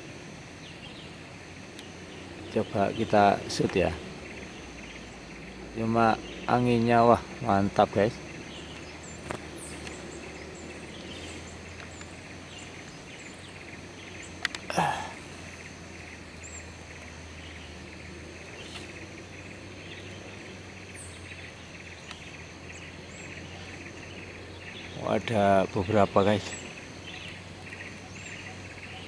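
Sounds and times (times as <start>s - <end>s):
insects buzzing: 0.0s - 29.0s
sharp clicks: 14.2s - 14.7s.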